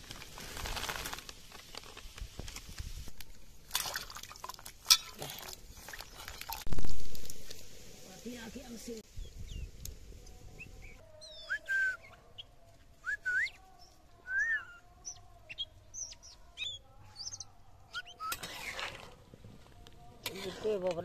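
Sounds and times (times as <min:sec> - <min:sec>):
bird singing whistled notes: 0:09.1 - 0:09.7, 0:10.6 - 0:18.4.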